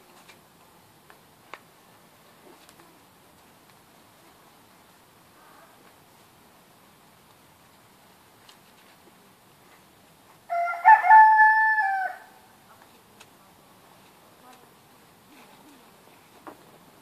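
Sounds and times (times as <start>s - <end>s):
rooster crowing: 10.5s - 12.4s.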